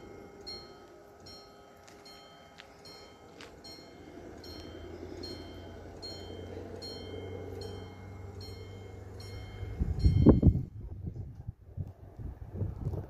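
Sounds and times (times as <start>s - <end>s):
level crossing bell ringing: 0.0s - 10.6s
wind buffeting microphone: 4.1s - 13.0s.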